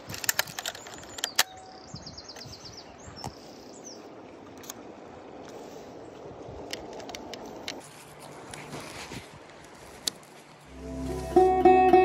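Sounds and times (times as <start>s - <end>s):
background hiss: 9.6s - 12.0s.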